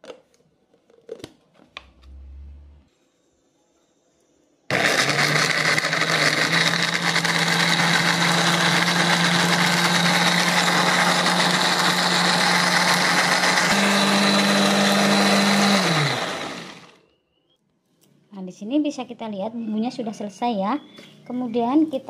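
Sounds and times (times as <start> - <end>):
blender motor grinding: 4.7 - 17.0.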